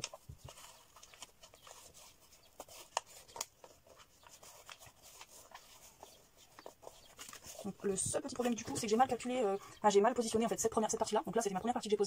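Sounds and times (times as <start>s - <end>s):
small clicks and crackles: 0.0s - 7.5s
paper rustling and crinkling: 0.0s - 9.3s.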